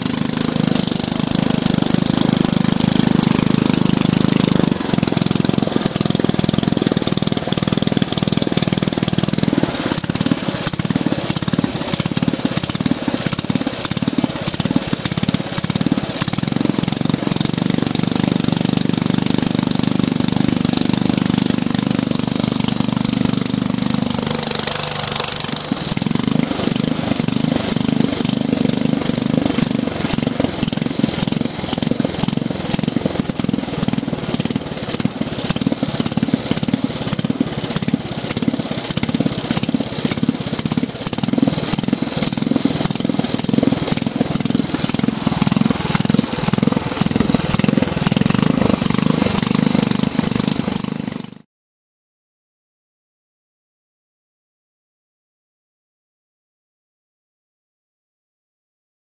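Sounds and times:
lawn mower engine running: 0.0 - 51.4.

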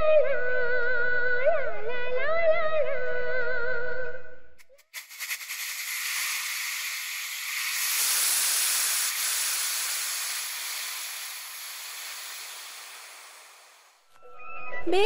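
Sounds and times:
steady high hiss: 4.8 - 14.1.

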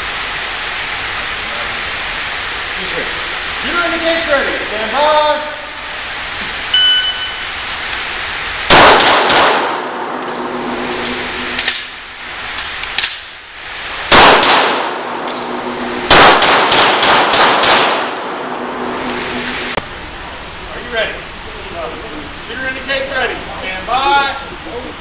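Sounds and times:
shot timer beep: 6.7 - 7.4
handgun shots echoing: 8.7 - 10.4, 14.1 - 18.4.

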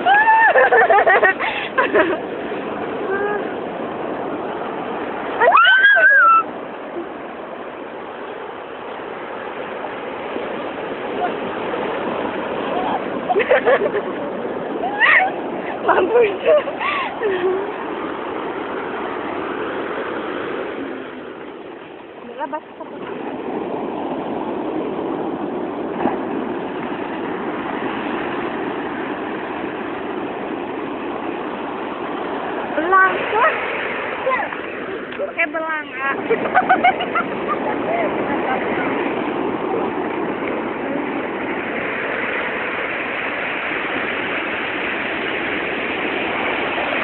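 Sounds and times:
surf washing over shore: 0.0 - 47.0.

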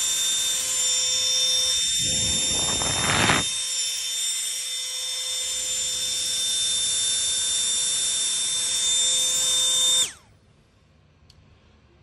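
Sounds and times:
ducted fan high-pitched whine: 0.0 - 5.3.

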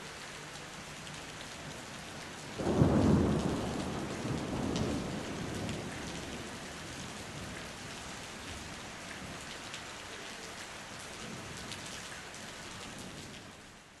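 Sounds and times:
heavy rain on pavement: 0.0 - 14.0
close raindrop ticks: 0.1 - 13.5
thunder rumble: 2.6 - 7.5.

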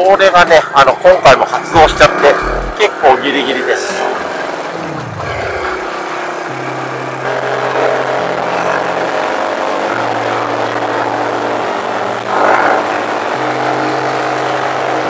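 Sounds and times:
motorcycle engine running: 1.6 - 2.8, 4.6 - 15.0
wind rush: 4.7 - 6.4.

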